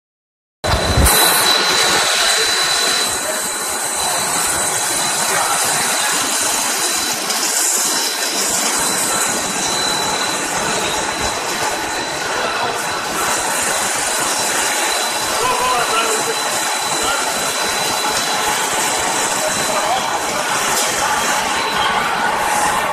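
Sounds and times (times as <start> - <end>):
high machine whine: 0.6 - 22.9
loud machine noise: 0.6 - 22.9.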